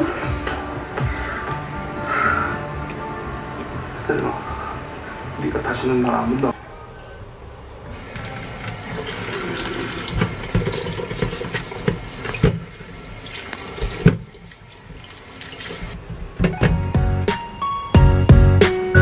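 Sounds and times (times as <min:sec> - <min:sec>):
tap water running into a sink: 0:07.9 - 0:16.0.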